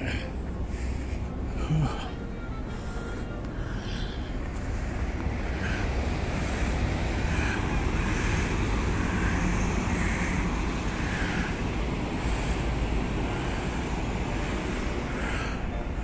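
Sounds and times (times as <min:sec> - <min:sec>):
distant road traffic hum: 0:00.0 - 0:16.0.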